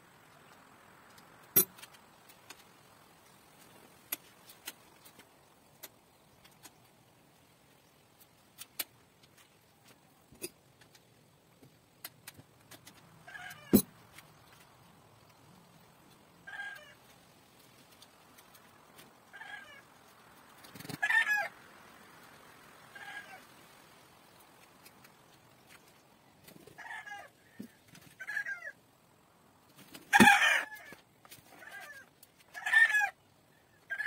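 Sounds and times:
bike parts and tools clicking: 0:00.4 - 0:02.8.

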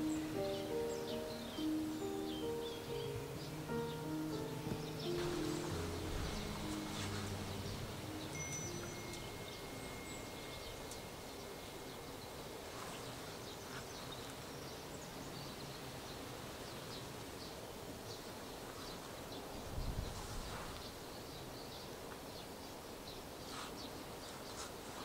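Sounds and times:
faint bird chirps: 0:00.0 - 0:16.2
soft steady hiss: 0:00.0 - 0:25.0.

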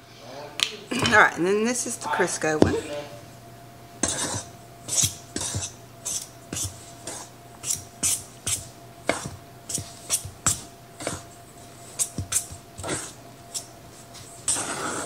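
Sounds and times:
utensil scraping metal bowl: 0:04.0 - 0:10.3.

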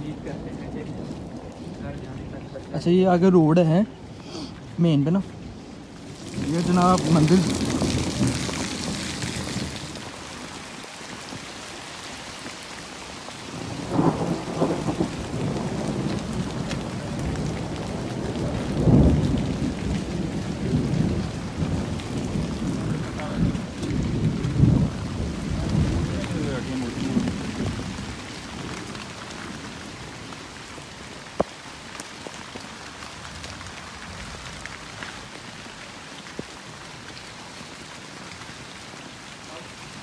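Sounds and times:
heavy rain: 0:00.0 - 0:40.0
thunder rumbling: 0:05.2 - 0:11.7, 0:13.4 - 0:31.5.

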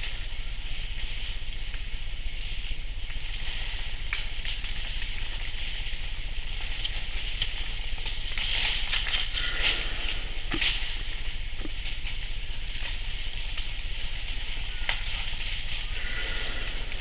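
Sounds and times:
elephant snoring: 0:09.3 - 0:11.2, 0:15.8 - 0:17.0.

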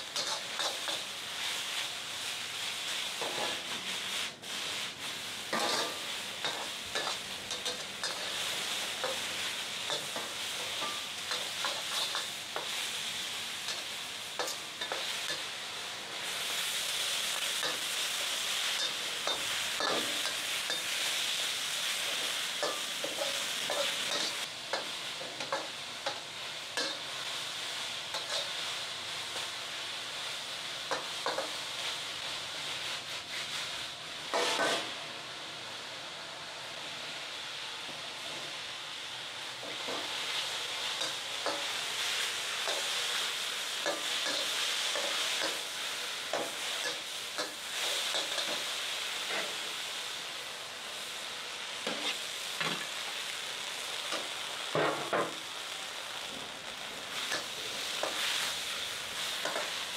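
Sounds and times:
ladle scraping wok: 0:00.0 - 0:01.6, 0:02.3 - 0:15.6, 0:16.2 - 0:26.2, 0:28.1 - 0:28.6, 0:34.3 - 0:35.0, 0:39.7 - 0:49.6
food sizzling in a wok: 0:00.0 - 0:59.9
gas burner roar: 0:51.8 - 0:59.9.

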